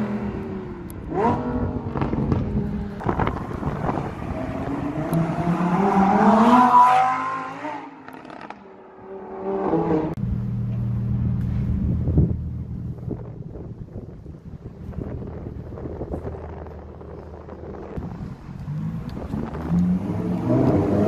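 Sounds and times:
sports car engine accelerating: 15.3 - 21.0.

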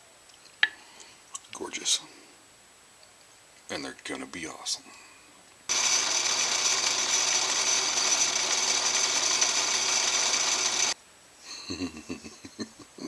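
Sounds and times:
drill press motor running: 5.7 - 11.0.

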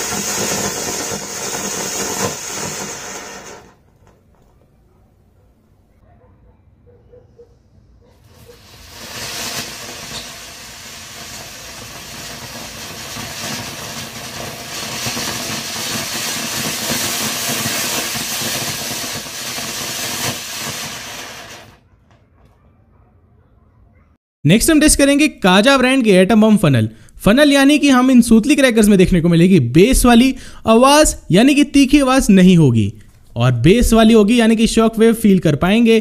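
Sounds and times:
firework spraying sparks hissing: 0.0 - 3.9, 8.2 - 21.8.

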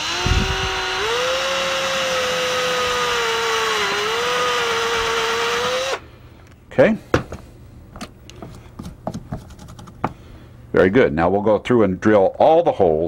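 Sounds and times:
cordless drill boring through panel: 0.0 - 6.0.

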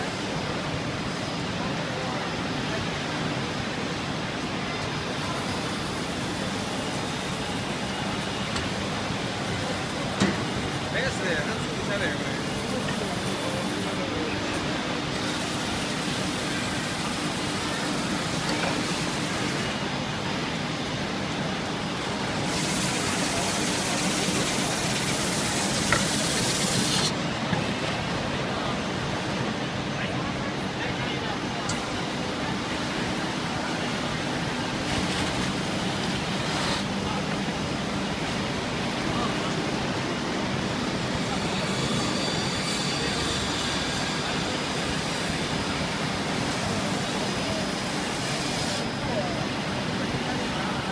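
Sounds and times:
sanding machine running: 22.3 - 27.1.

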